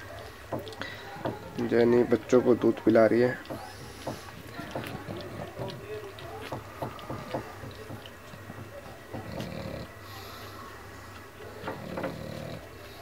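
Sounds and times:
dog breathing noisily: 0:03.4 - 0:05.7, 0:06.6 - 0:13.0.

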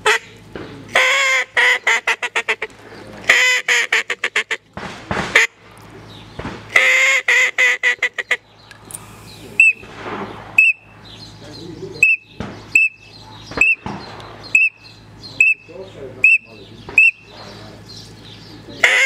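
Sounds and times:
duck call quacks: 0:00.0 - 0:04.7, 0:05.3 - 0:05.6, 0:06.7 - 0:08.4, 0:18.8 - 0:19.0.

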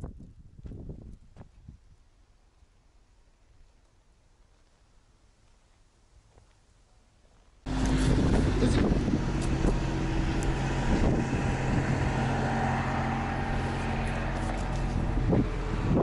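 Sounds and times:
wind on microphone: 0:00.0 - 0:02.0, 0:07.7 - 0:16.0
vehicle engine running: 0:07.7 - 0:16.0.

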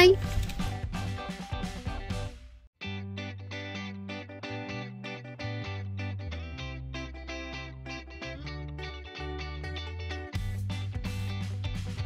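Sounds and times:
plucked guitar music with beat: 0:00.0 - 0:12.0.

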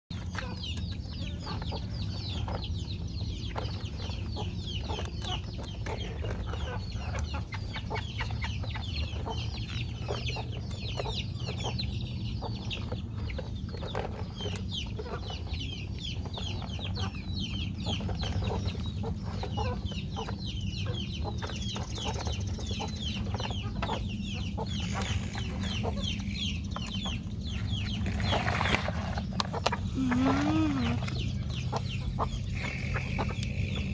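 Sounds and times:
birds chirping: 0:00.1 - 0:33.9
low steady hum: 0:00.1 - 0:33.9
toy excavator digging dirt: 0:24.6 - 0:26.1, 0:27.7 - 0:31.7.

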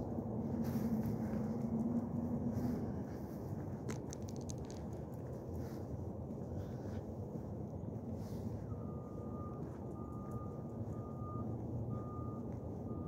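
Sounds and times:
low steady rumble: 0:00.0 - 0:13.0
reversing alarm beeping: 0:08.3 - 0:13.0.

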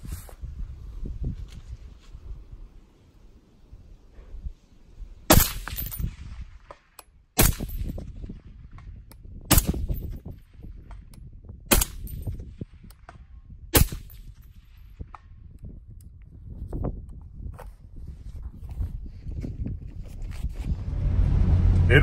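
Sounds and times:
suppressed rifle shots: 0:05.3 - 0:08.0, 0:09.5 - 0:09.9, 0:13.8 - 0:14.3.

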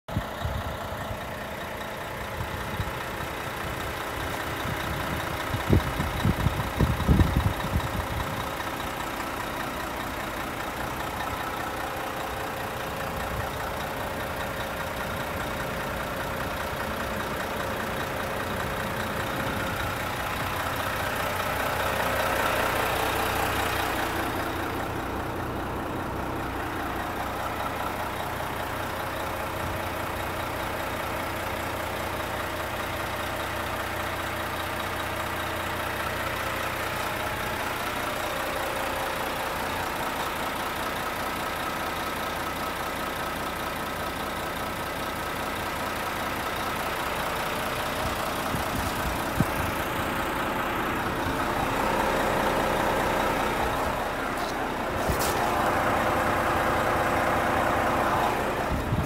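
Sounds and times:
truck diesel engine idling: 0:00.0 - 0:59.0.

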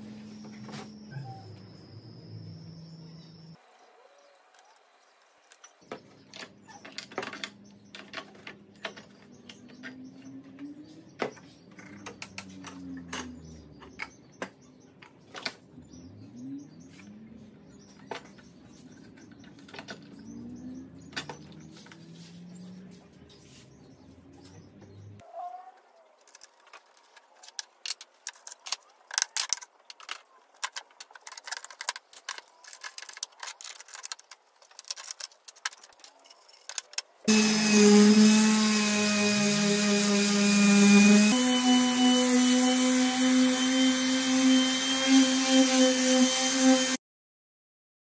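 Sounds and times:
birds calling faintly: 0:00.0 - 0:37.3.

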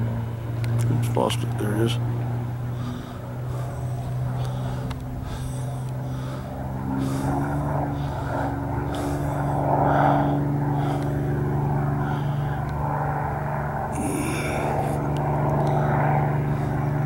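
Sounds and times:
propeller plane flying overhead: 0:00.0 - 0:17.0.

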